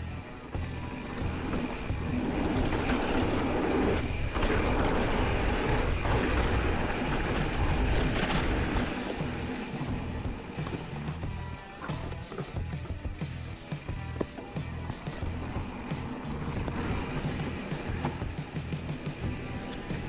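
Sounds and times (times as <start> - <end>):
bike clattering: 0.0 - 20.0
knobby tyres rumbling over dirt: 0.0 - 20.0
wind rush on microphone: 1.4 - 10.4.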